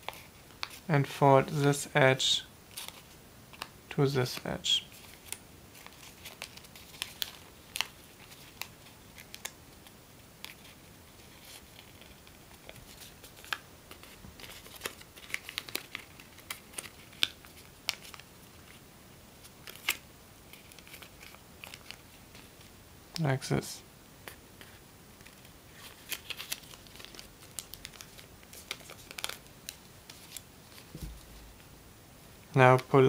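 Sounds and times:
paper crinkling and snapping: 4.9s - 9.6s, 10.4s - 18.8s, 19.6s - 22.6s, 25.2s - 31.2s.

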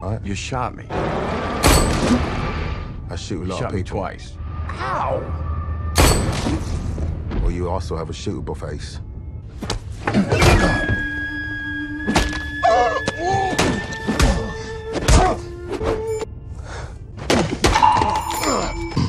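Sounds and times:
film score with held notes: 0.0s - 19.0s.

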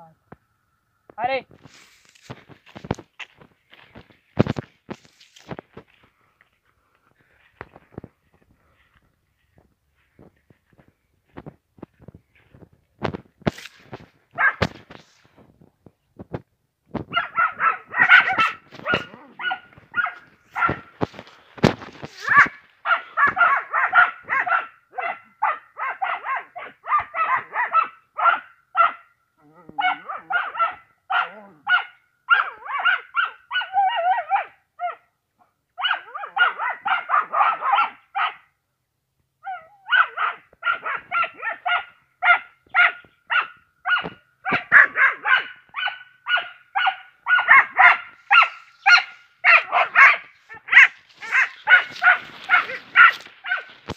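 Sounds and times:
animal calling rapidly: 44.0s - 53.8s.

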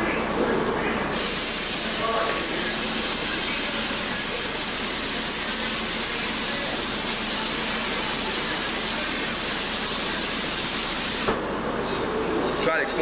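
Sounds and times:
steady hiss: 1.1s - 11.3s.

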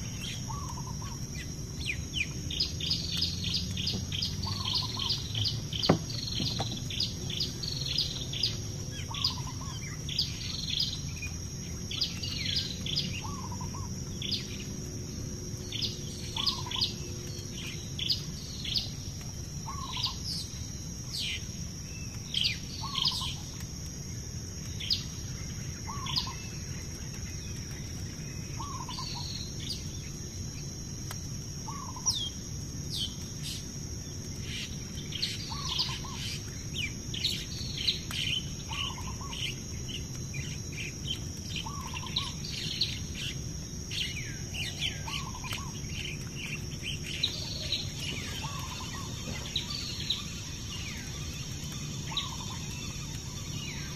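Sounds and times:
lower bird call: 0.0s - 11.2s, 11.9s - 14.7s, 15.7s - 19.0s, 19.6s - 20.6s, 28.3s - 30.0s, 31.6s - 32.4s, 34.4s - 53.9s
birds chirping: 0.0s - 23.6s, 24.7s - 30.2s, 32.9s - 53.9s.

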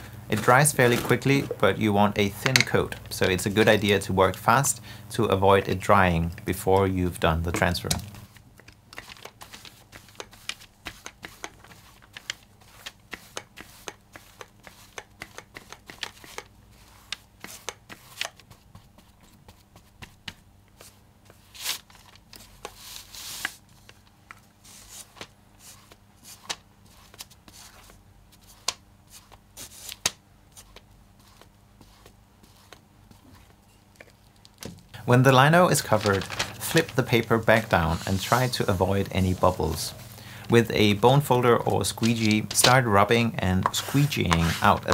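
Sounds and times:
bristle brush strokes: 24.6s - 33.6s, 36.6s - 40.2s, 43.6s - 44.9s.

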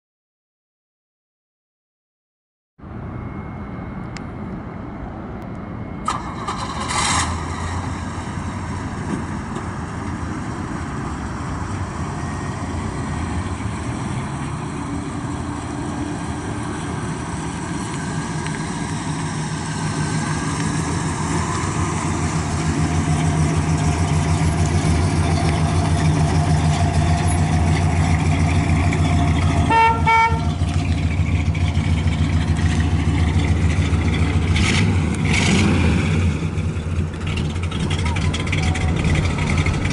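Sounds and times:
car engine idling: 5.5s - 39.9s
short horn-like beeps: 29.6s - 30.6s.

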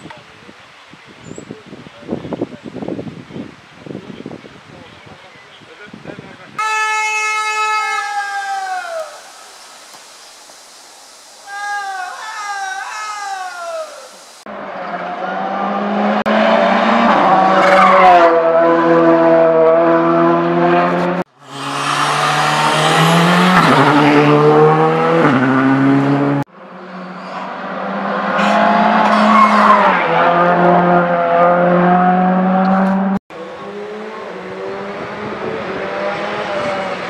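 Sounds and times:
rally car engines at high revs: 14.5s - 37.0s.

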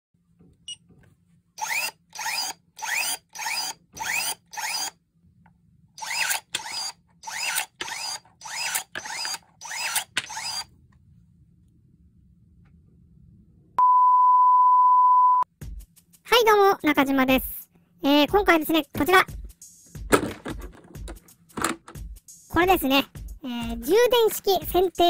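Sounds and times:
electric pruning shears cutting wood: 1.6s - 5.0s, 6.0s - 10.7s.

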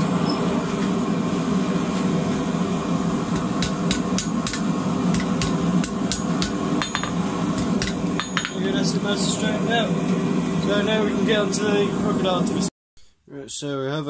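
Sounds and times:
steady low hum: 0.0s - 12.7s
hammer striking steel on anvil: 3.3s - 8.8s.

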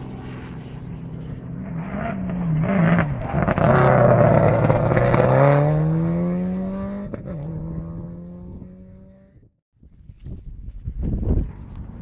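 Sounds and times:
rally car accelerating: 0.8s - 9.4s.

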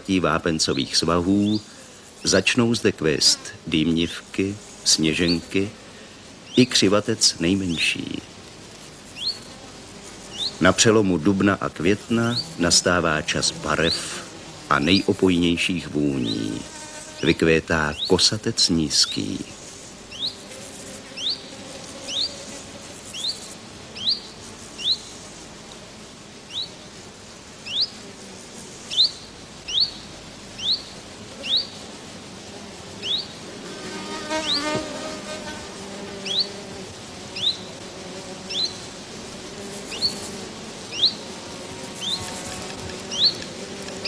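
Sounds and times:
faint buzz of insects: 0.0s - 44.0s
wavering insect buzz: 0.0s - 44.0s
bird chirping: 6.4s - 6.9s, 9.1s - 9.6s, 10.2s - 10.8s, 17.2s - 18.4s, 19.0s - 20.4s, 21.1s - 22.4s, 23.1s - 25.1s, 26.5s - 26.8s, 27.6s - 28.0s, 28.9s - 31.8s, 33.0s - 33.4s, 34.2s - 34.9s, 36.2s - 36.6s, 37.3s - 37.8s, 38.5s - 38.8s, 39.8s - 40.3s, 40.9s - 41.3s, 42.0s - 44.0s.

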